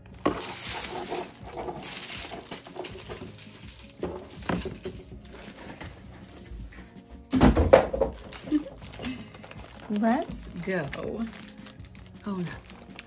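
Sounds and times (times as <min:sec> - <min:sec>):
cellophane crinkling: 0:00.0 - 0:06.9, 0:08.0 - 0:13.0
tissue paper rustling: 0:00.0 - 0:07.1, 0:08.0 - 0:13.0.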